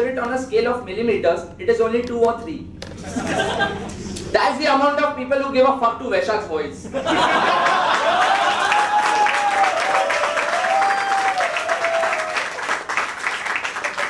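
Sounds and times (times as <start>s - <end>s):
drawn-out cheer: 7.4s - 13.0s
audience applauding: 7.4s - 14.0s.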